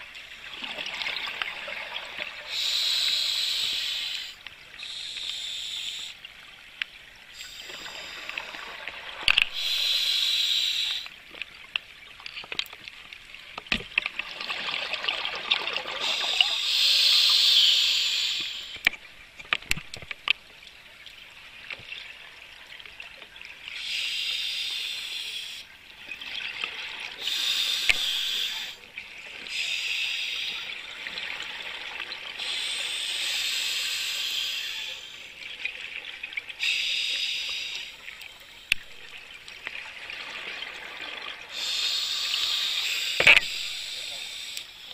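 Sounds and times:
hissing regulator inhalations: 2.5s - 6.2s, 9.4s - 11.2s, 16.0s - 18.8s, 23.8s - 25.7s, 27.2s - 28.8s, 29.5s - 30.8s, 32.4s - 35.3s, 36.6s - 38.8s, 41.5s - 44.9s.

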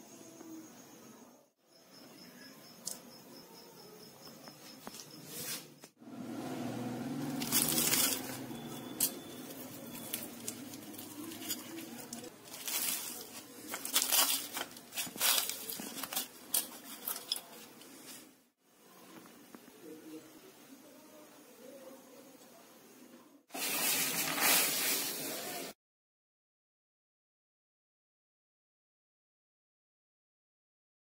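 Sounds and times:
fried dough crackling: 7.0s - 18.4s, 23.5s - 25.7s.

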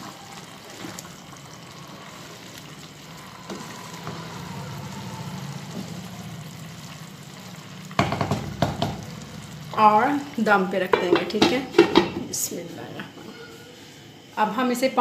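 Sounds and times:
wooden spatula stirring: 0.0s - 4.4s
vegetables simmering and sizzling: 0.0s - 14.9s.

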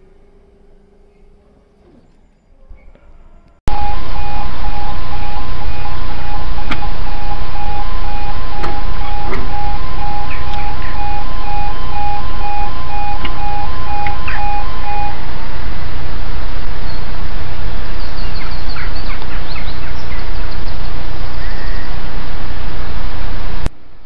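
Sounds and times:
birds chirping: 0.8s - 3.6s, 4.2s - 15.1s, 18.0s - 22.0s
level crossing alarm beeps: 3.7s - 15.2s.

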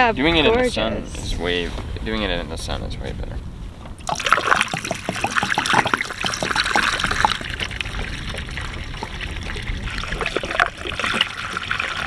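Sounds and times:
water pouring through a funnel: 4.0s - 12.0s.

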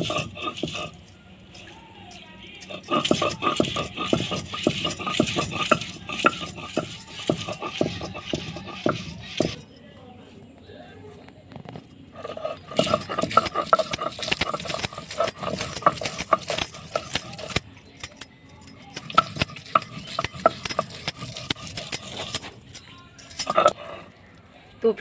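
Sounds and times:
stone roller grinding on stone slab: 0.0s - 1.0s, 2.6s - 9.6s, 12.2s - 24.0s
bangles jingling: 0.0s - 9.9s, 11.7s - 24.6s.

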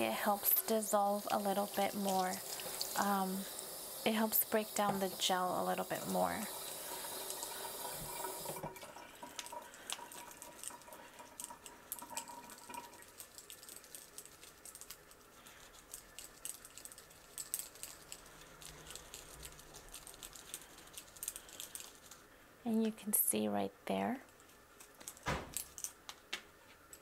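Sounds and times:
water splashes and drips: 0.0s - 15.0s
tap water running: 0.0s - 15.6s.

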